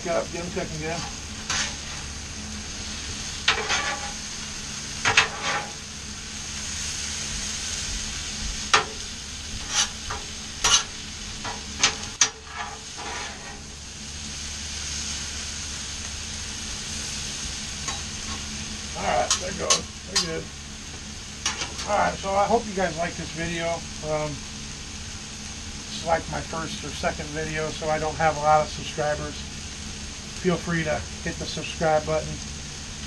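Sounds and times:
metal spatula scraping griddle: 0.0s - 2.2s, 3.3s - 5.9s, 8.6s - 13.8s, 17.8s - 20.4s
vegetables sizzling on a griddle: 0.0s - 33.0s.

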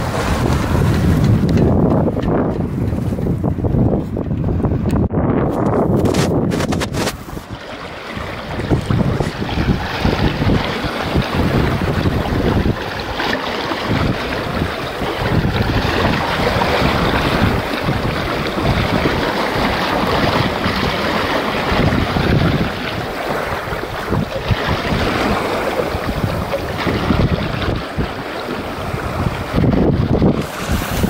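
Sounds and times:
water rushing along boat hull: 0.0s - 31.0s
wind buffeting microphone: 0.0s - 31.0s.

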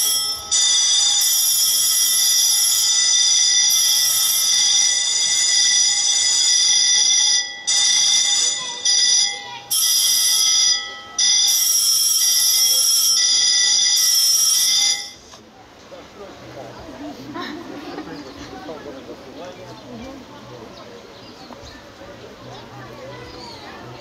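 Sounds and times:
electric bell ringing: 0.0s - 15.2s.

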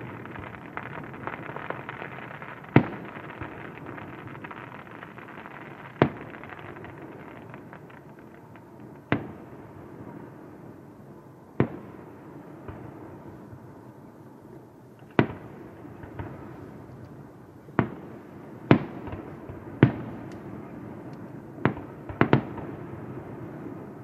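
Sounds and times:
fireworks bursting with bangs: 0.0s - 10.8s, 15.0s - 24.0s
fireworks crackling: 0.0s - 10.8s.

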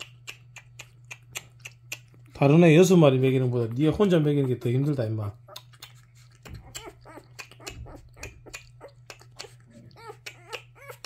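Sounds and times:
puppy sucking on bottle: 0.0s - 11.0s
puppy squeaking and whimpering: 4.2s - 11.0s.

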